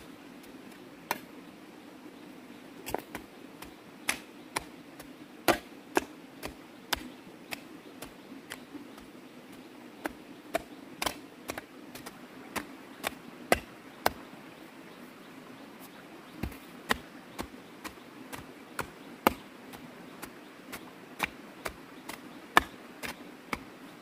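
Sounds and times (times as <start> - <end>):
digging tool chopping ground: 2.8 - 8.7, 10.0 - 14.2, 16.4 - 23.7.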